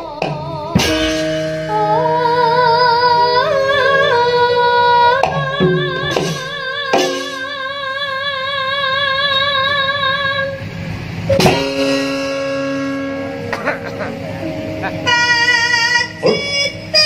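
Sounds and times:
woman singing with vibrato: 0.0s - 10.8s, 11.6s - 17.0s
instrumental accompaniment: 0.0s - 17.0s
sharp strikes: 0.2s - 1.7s, 5.2s - 7.6s, 11.3s - 16.5s.

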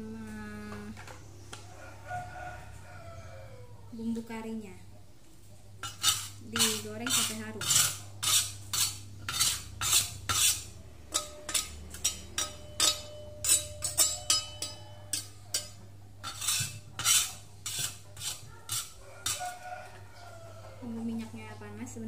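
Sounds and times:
metal spoon scraping stone mortar: 5.8s - 19.7s.

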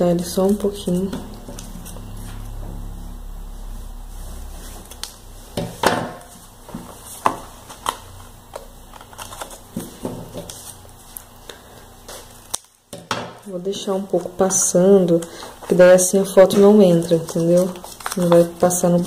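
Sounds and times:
paper rustling against cardboard: 14.2s - 19.0s.

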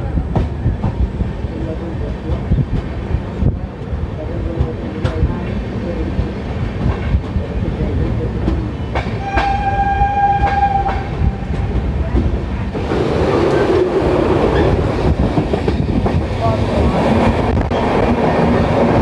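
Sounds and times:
train horn: 9.2s - 11.5s.

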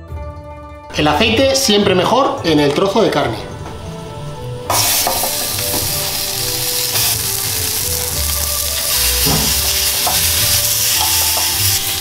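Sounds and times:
background music: 0.0s - 12.0s
steaks sizzling in a frying pan: 4.7s - 12.0s.

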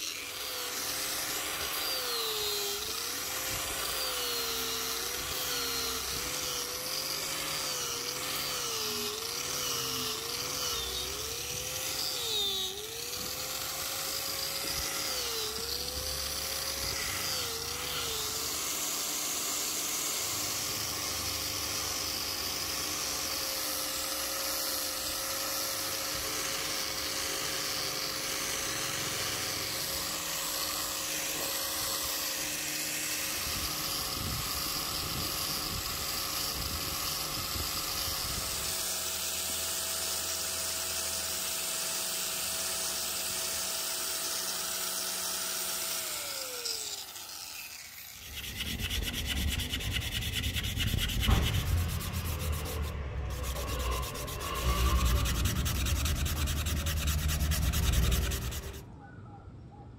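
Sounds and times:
power drill motor whine: 0.0s - 58.9s
rubbing sound: 48.2s - 58.8s.

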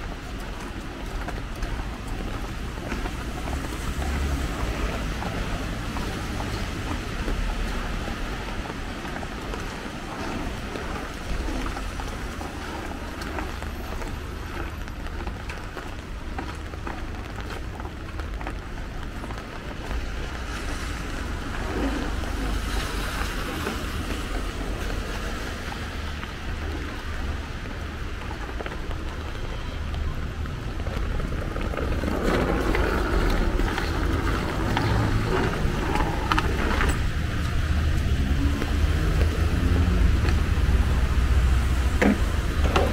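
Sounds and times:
vehicle approaching: 0.0s - 18.6s, 30.3s - 42.9s
low traffic rumble: 0.0s - 42.9s
tyres hissing on wet road: 0.1s - 18.1s, 18.8s - 42.9s.

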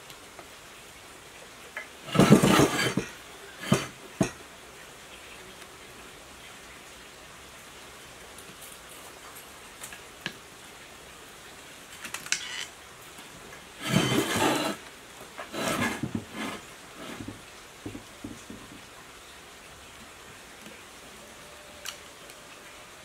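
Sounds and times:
metal casing scraping on bench: 2.1s - 4.3s, 13.8s - 14.8s, 15.4s - 17.4s
light clicks and scrapes: 13.8s - 14.8s, 15.4s - 17.4s.

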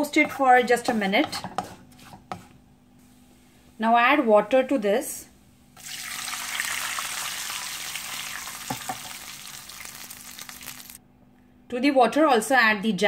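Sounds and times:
water sizzling in hot fat: 5.8s - 11.0s.

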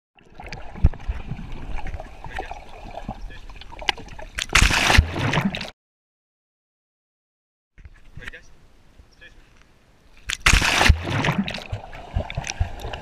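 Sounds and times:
water sloshing and splashing: 0.2s - 5.7s, 10.3s - 13.0s.

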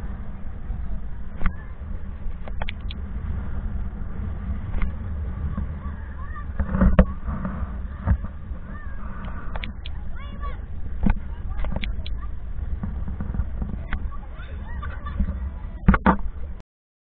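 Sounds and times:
faint distant voices: 0.0s - 16.6s
wind and water rumble: 0.0s - 16.6s
sharp clicks: 2.4s - 3.0s, 9.2s - 10.0s.

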